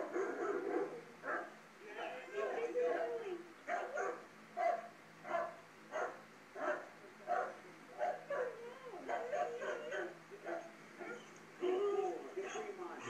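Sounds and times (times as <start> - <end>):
dog whining and yelping: 8.3 - 12.7.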